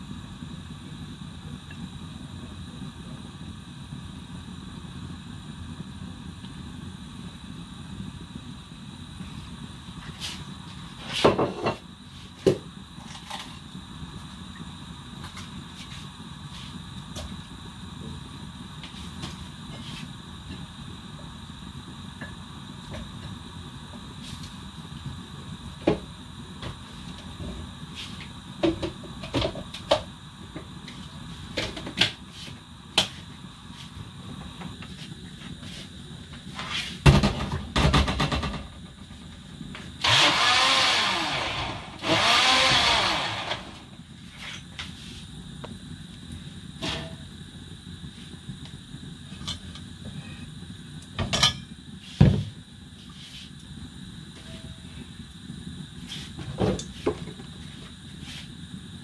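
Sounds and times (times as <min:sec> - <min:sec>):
steady low hum: 0:00.0 - 0:59.0
loud noisy bursts: 0:40.0 - 0:44.0.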